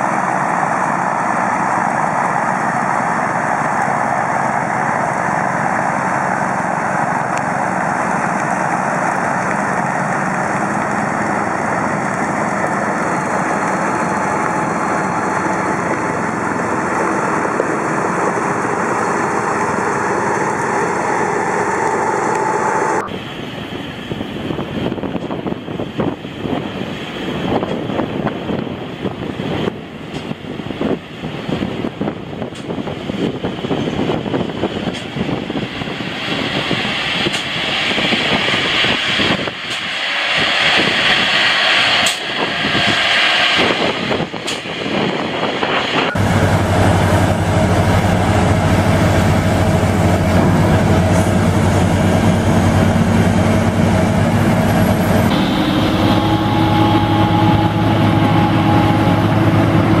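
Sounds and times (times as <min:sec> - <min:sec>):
snow blower engine humming: 0:46.1 - 1:00.0.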